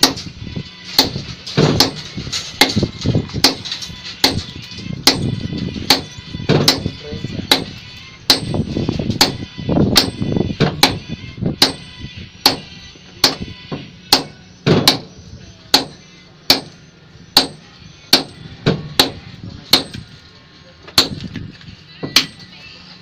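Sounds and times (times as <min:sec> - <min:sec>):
sledgehammers striking concrete: 0:00.9 - 0:11.0, 0:12.5 - 0:13.5, 0:14.1 - 0:16.8, 0:17.4 - 0:20.1, 0:20.9 - 0:21.4.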